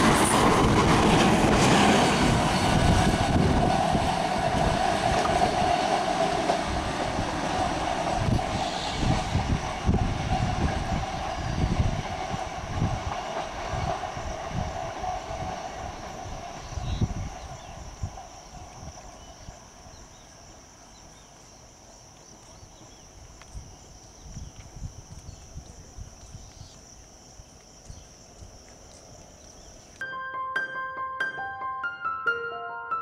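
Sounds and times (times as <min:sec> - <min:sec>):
train wheels clattering over rail joints: 0:00.0 - 0:17.0
high even hiss: 0:08.4 - 0:09.5
music: 0:30.0 - 0:33.0.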